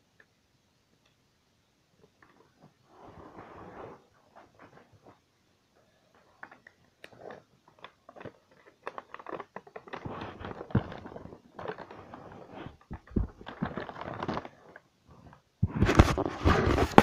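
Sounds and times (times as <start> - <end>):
toy packaging crinkling: 6.4 - 14.8.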